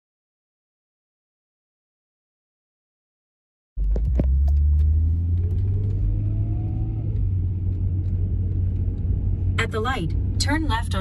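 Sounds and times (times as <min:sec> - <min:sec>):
van road and engine noise: 0:03.8 - 0:11.0.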